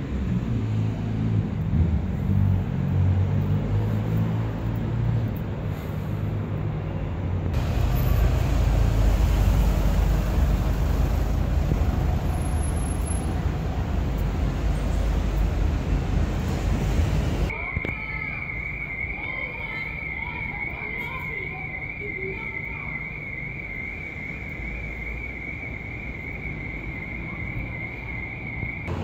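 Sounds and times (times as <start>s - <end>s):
vehicle engine rumble: 0.0s - 17.6s, 23.3s - 29.0s
street traffic: 0.0s - 29.0s
rough rushing rumble: 7.6s - 17.5s.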